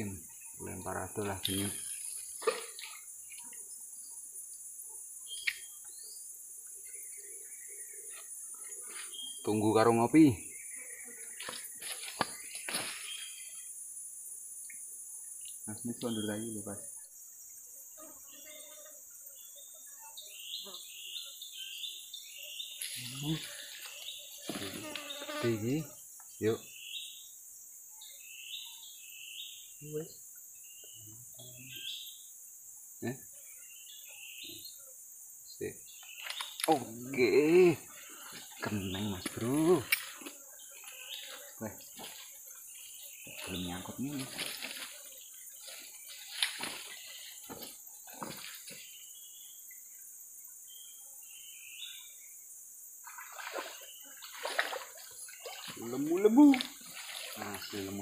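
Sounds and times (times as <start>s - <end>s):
insects droning: 0.0s - 58.0s
bird chirps: 5.2s - 13.7s, 14.6s - 17.1s, 19.4s - 25.4s, 28.0s - 32.3s, 33.6s - 34.8s, 35.7s - 40.1s.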